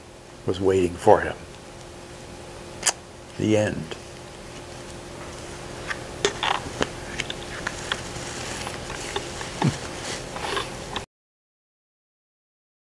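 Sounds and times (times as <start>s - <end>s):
faint steady hum: 0.0s - 11.1s
handling clicks and rustles: 3.9s - 11.0s.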